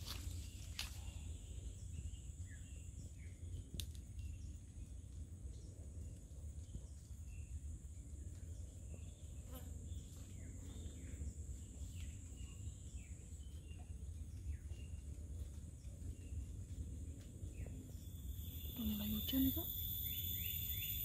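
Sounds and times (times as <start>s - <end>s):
birds chirping: 0.0s - 21.0s
insects droning: 0.0s - 21.0s.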